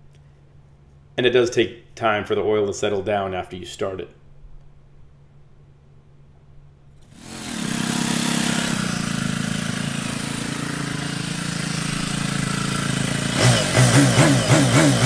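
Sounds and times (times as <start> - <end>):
motorcycle engine idling: 7.6 - 15.0.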